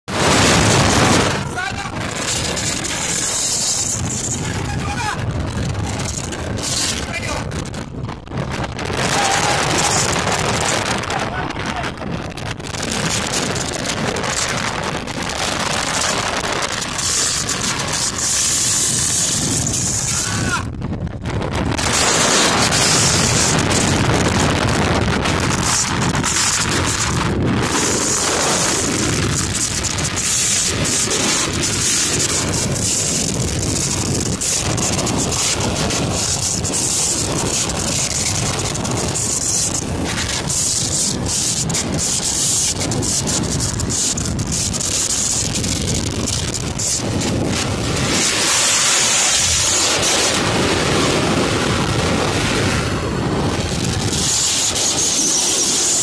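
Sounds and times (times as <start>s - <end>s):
rough sea breaking: 0.0s - 56.0s
wind blowing across microphone: 0.0s - 56.0s.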